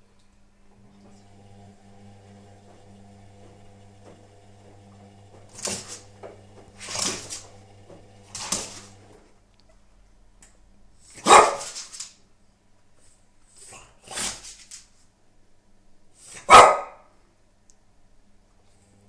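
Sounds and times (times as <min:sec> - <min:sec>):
washing machine humming: 0:00.6 - 0:09.4
puppy barking: 0:11.2 - 0:11.8, 0:16.4 - 0:17.1.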